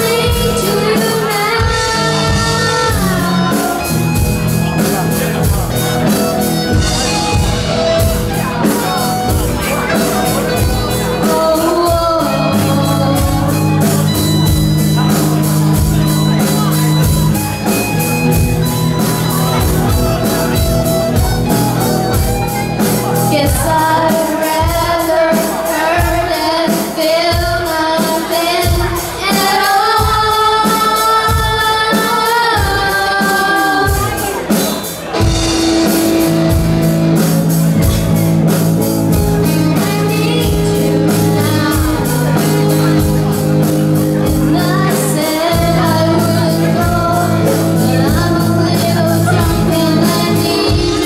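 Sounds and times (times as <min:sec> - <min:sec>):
woman singing: 0:00.0 - 0:04.3, 0:09.8 - 0:14.2, 0:23.3 - 0:34.5, 0:39.4 - 0:43.4, 0:44.1 - 0:51.0
live rock band playing: 0:00.0 - 0:51.0.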